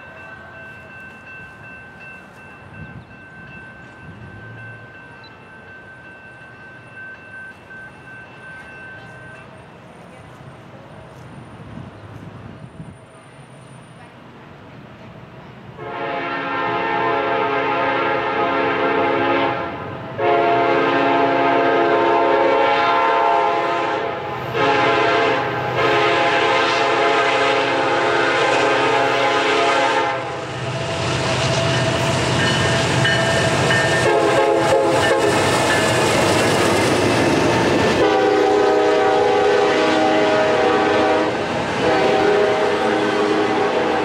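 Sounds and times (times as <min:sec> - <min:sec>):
train wheels on rails: 0:00.0 - 0:44.0
locomotive air horn: 0:15.8 - 0:35.6, 0:37.9 - 0:44.0
locomotive engine: 0:28.7 - 0:44.0.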